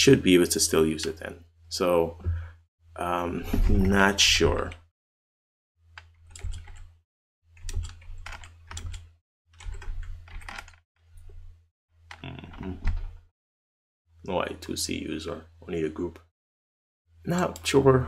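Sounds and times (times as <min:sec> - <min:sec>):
typing on computer keyboard: 0:06.0 - 0:06.9, 0:07.6 - 0:10.8.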